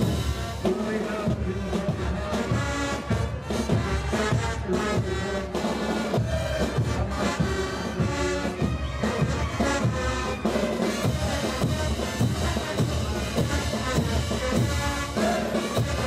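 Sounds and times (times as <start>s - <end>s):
bass drum beat: 0.0s - 5.3s, 10.8s - 16.0s
brass band playing: 0.0s - 16.0s.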